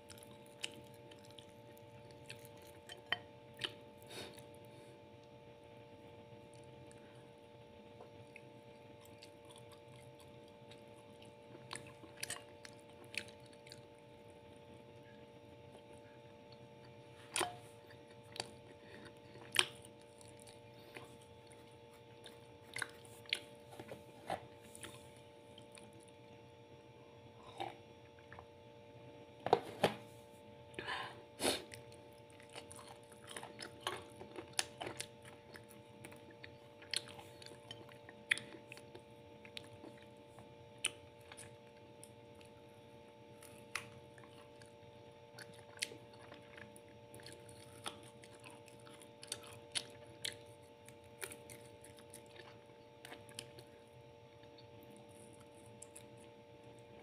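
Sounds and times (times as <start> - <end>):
person chewing food: 0.0 - 5.4, 6.1 - 26.4, 27.3 - 28.6, 30.6 - 57.0
faint steady hum: 0.0 - 57.0.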